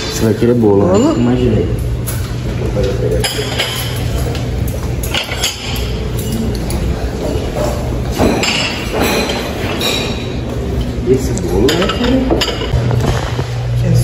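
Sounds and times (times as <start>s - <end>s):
china plates clinking: 0.7s - 12.8s
metal tongs clinking: 2.0s - 7.0s.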